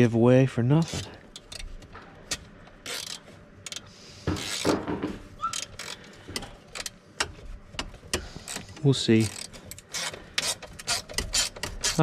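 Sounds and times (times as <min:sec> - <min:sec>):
socket ratchet clicking: 0:02.3 - 0:04.7, 0:05.4 - 0:12.0
metal parts scraping: 0:02.8 - 0:04.8, 0:08.3 - 0:12.0.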